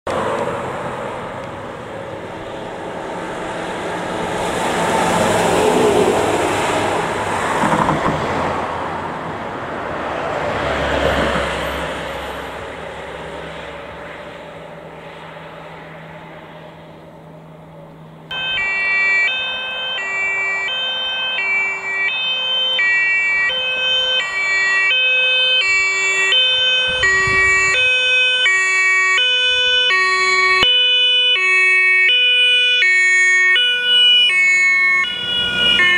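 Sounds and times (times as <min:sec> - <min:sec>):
fire engine driving past: 0:00.1 - 0:35.9
two-tone emergency siren: 0:03.3 - 0:07.9, 0:18.3 - 0:35.9.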